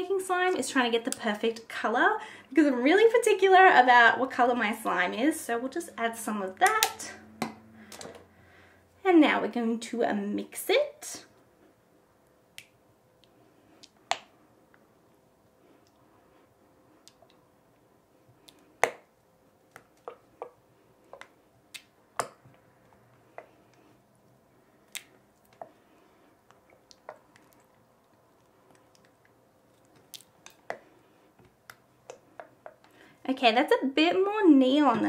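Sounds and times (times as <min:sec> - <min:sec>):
sticky stirring: 0:18.4 - 0:33.0.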